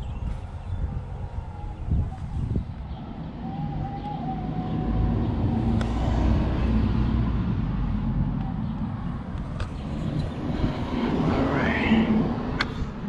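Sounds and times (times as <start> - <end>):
vehicle driving past: 3.2 - 13.0.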